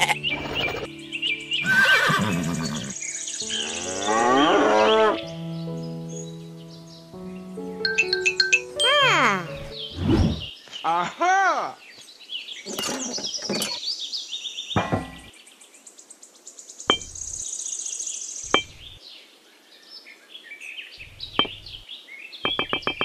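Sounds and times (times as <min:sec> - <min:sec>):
high chirping calls: 0:16.8 - 0:19.0, 0:21.0 - 0:23.0.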